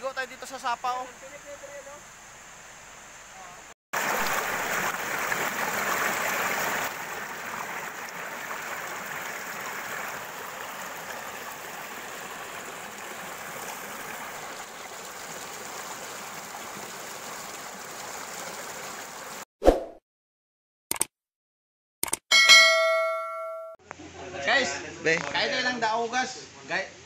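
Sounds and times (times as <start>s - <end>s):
stream rushing over rocks: 4.0s - 19.4s.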